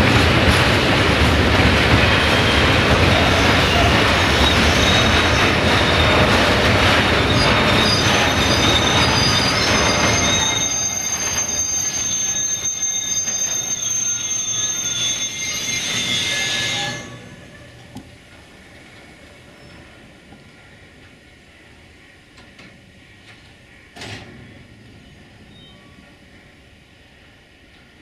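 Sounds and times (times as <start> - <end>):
train wheels clattering on rails: 0.0 - 16.4, 17.5 - 26.5
high-pitched metallic squeal: 2.2 - 17.9.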